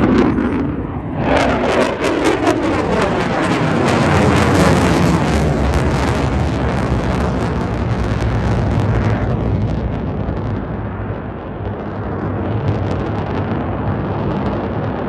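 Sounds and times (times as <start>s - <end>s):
jet flying overhead: 0.0s - 15.0s.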